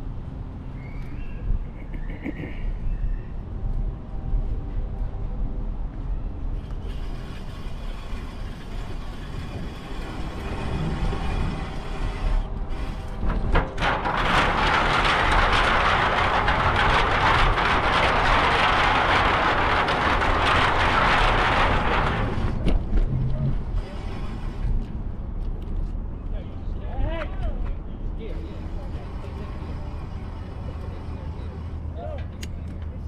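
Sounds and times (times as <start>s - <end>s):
bicycle riding rumble: 0.0s - 26.2s.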